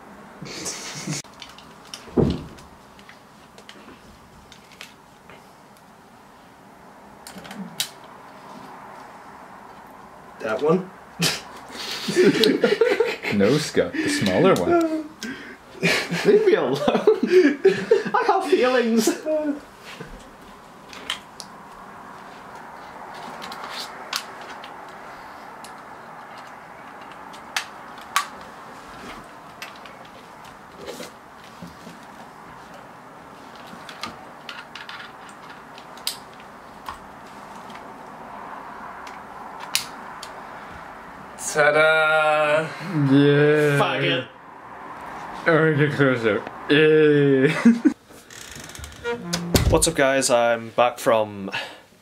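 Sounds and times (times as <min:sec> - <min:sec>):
small clicks and knocks of gear: 0:01.2 - 0:05.0, 0:22.5 - 0:25.0, 0:25.6 - 0:28.5, 0:29.1 - 0:32.8, 0:33.5 - 0:37.9.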